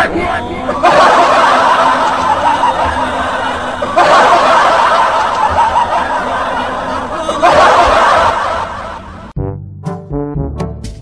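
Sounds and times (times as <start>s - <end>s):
person laughing in snickers: 0.6s - 8.8s.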